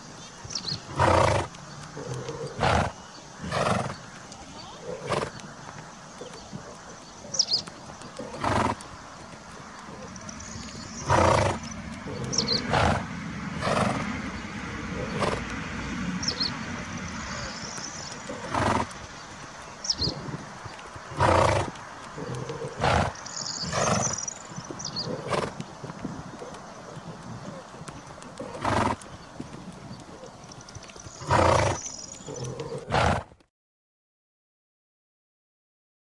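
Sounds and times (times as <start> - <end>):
birds chirping faintly: 0.0 - 33.2
horse tearing grass: 21.1 - 24.3, 28.3 - 29.0.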